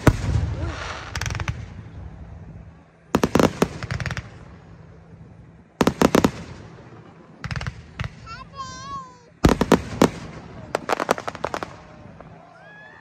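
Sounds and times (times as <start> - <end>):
fireworks bursting bangs: 0.0 - 2.4, 3.0 - 12.5.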